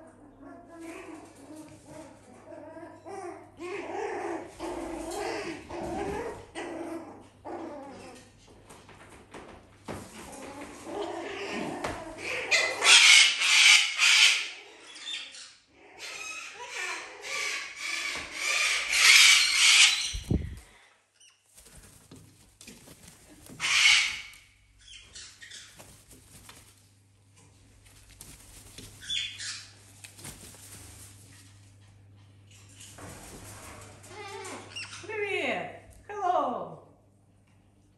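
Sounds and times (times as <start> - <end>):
parrot flapping wings: 18.9 - 20.8, 21.5 - 31.7, 32.7 - 34.7
faint rustles: 20.0 - 34.6.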